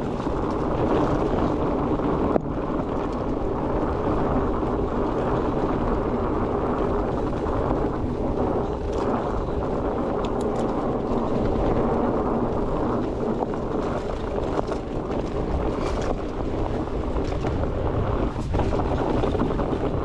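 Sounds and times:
bike clicks and rattles: 0:00.0 - 0:20.0
tyres rolling on dirt: 0:00.0 - 0:20.0
wind buffeting microphone: 0:00.0 - 0:20.0.

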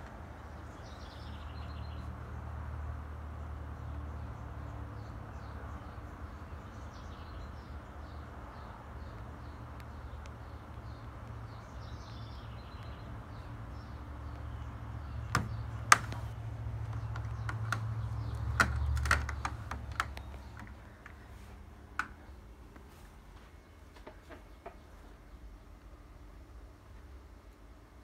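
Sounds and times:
kitten claws clicking on mesh screen: 0:15.3 - 0:21.2.

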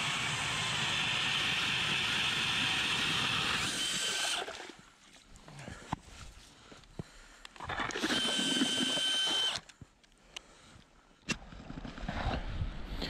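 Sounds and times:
drill driving ice auger: 0:00.0 - 0:04.5, 0:07.6 - 0:09.7.

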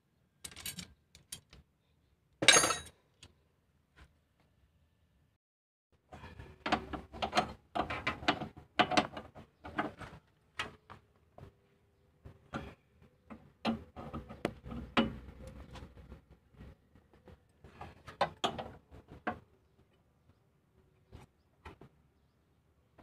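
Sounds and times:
metal tools clicking and clattering: 0:00.4 - 0:01.6, 0:02.4 - 0:03.0.

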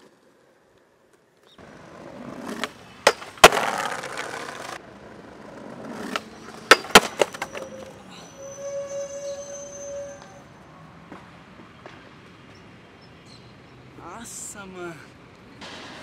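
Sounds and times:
skateboard wheels rolling on tiles: 0:00.0 - 0:08.0
skateboard wooden clacks: 0:02.4 - 0:07.7
skateboard landing on rail: 0:02.5 - 0:04.8, 0:05.9 - 0:07.6.

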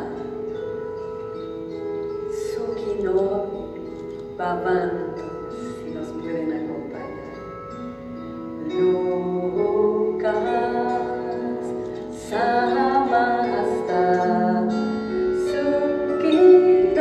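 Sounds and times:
plucked strings: 0:00.0 - 0:17.0
sustained singing: 0:08.6 - 0:17.0.

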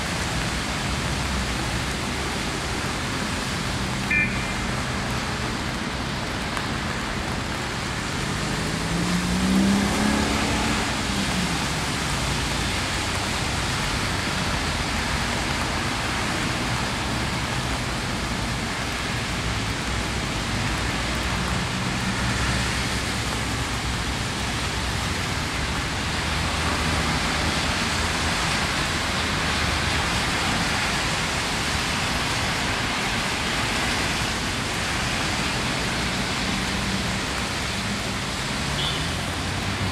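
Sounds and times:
steady rain falling: 0:00.0 - 0:39.9
vehicle engine passing: 0:08.2 - 0:11.0.

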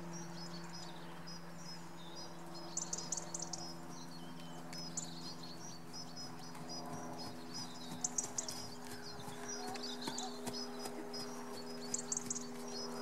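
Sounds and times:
small birds chirping: 0:00.0 - 0:13.0
steady low hum: 0:00.0 - 0:13.0.

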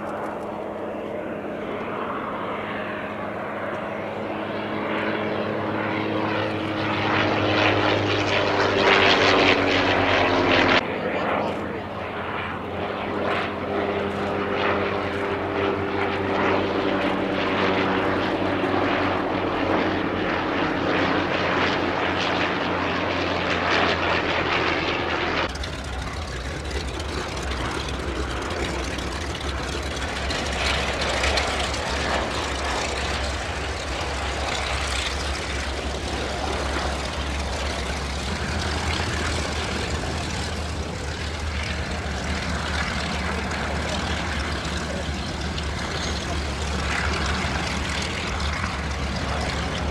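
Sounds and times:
propeller aircraft engine drone: 0:00.0 - 0:49.9.

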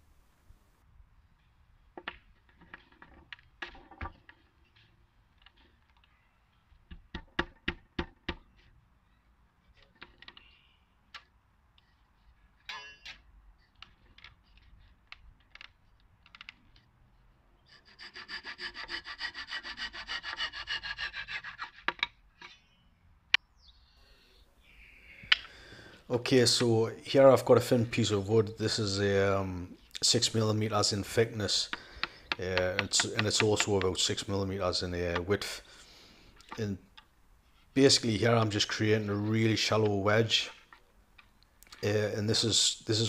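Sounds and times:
wooden knocks and taps: 0:06.9 - 0:08.7
hand saw cutting wood: 0:17.7 - 0:22.2.

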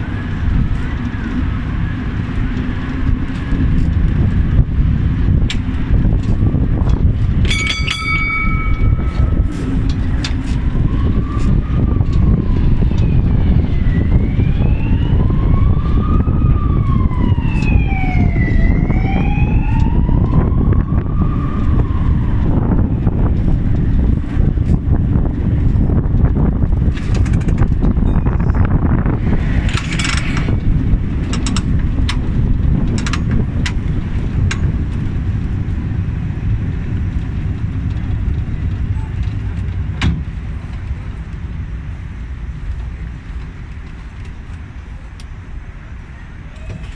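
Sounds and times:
vehicle low rumble: 0:00.0 - 0:46.9
wailing emergency siren: 0:08.0 - 0:26.8, 0:27.6 - 0:34.3.

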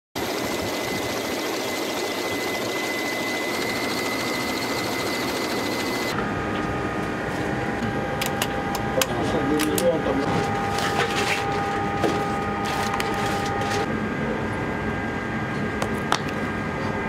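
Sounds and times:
rushing machine noise: 0:00.2 - 0:09.0.

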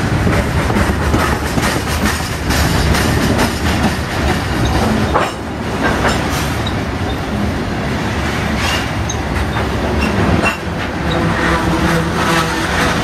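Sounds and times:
train wheels rumbling on rail: 0:00.0 - 0:13.0
wheels clicking over rail joints: 0:00.2 - 0:07.4, 0:08.6 - 0:11.3.

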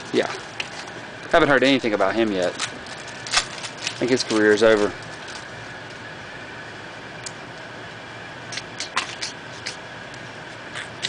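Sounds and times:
steady background hum: 0:00.0 - 0:11.0
foil wrapper crinkling: 0:00.1 - 0:06.1.

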